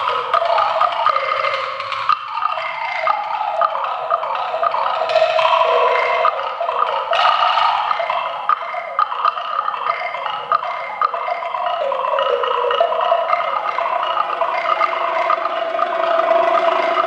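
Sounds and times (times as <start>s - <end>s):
ringing pitched percussion tones: 0.0s - 17.0s
sharp clicking percussion strikes: 0.0s - 17.0s.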